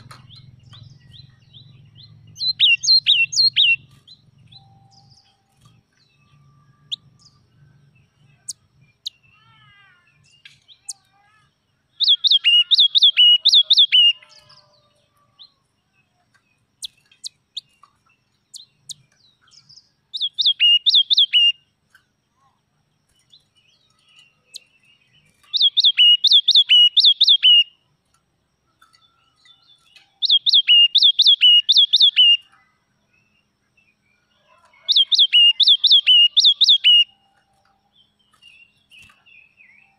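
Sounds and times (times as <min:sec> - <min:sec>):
bird singing whistled phrases: 0:02.3 - 0:03.9, 0:12.0 - 0:14.6, 0:20.2 - 0:21.6, 0:25.4 - 0:27.7, 0:30.2 - 0:32.5, 0:34.8 - 0:37.1.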